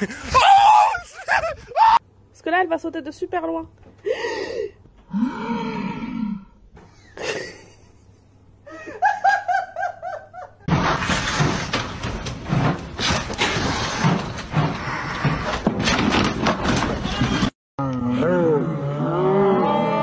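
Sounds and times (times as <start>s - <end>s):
person laughing: 0.0s - 2.0s, 6.9s - 10.6s
scattered knocks: 10.7s - 17.6s.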